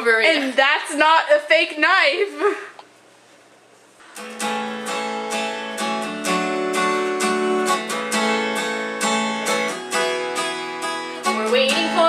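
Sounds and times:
acoustic guitar strumming chords: 0:04.1 - 0:12.0.

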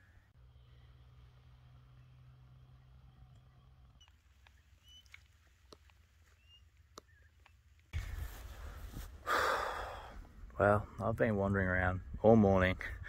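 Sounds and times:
faint high chirps: 0:01.9 - 0:05.4.

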